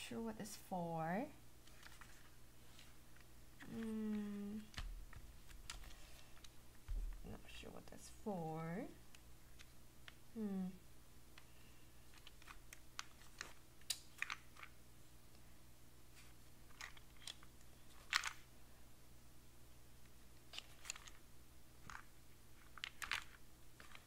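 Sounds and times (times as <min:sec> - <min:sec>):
wooden puzzle box clicks and scrapes: 0:22.6 - 0:24.0.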